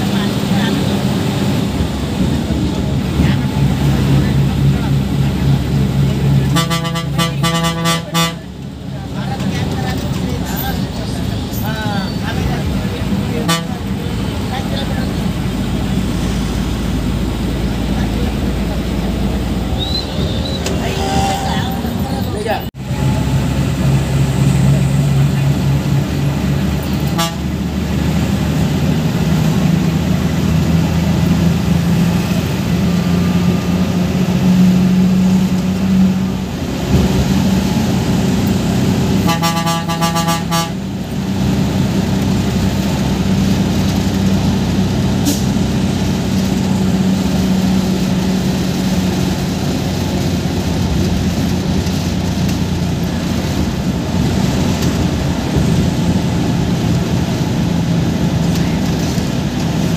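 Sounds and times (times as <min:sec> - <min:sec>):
bus diesel engine running: 0:00.0 - 0:59.9
road noise: 0:00.0 - 0:59.9
vehicle horn: 0:06.5 - 0:08.5, 0:13.4 - 0:13.8, 0:27.1 - 0:27.6, 0:39.2 - 0:40.8.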